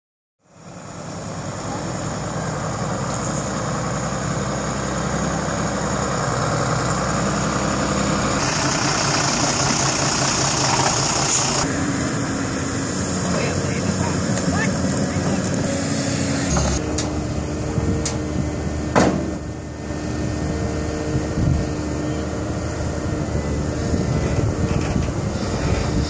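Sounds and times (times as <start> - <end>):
diesel engine idling: 0.4 - 26.0.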